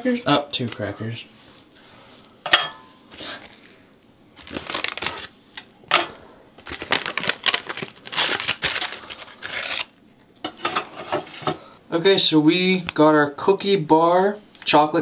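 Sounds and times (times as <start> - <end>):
plastic pouch crinkling: 4.3 - 5.7, 6.6 - 9.9.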